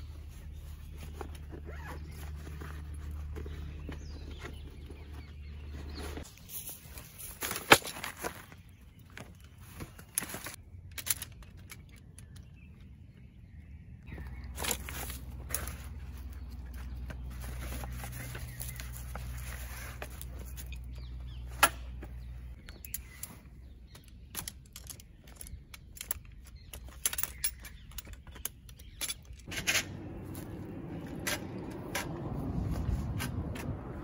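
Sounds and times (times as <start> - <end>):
rustling: 0.0 - 11.9, 14.1 - 23.8.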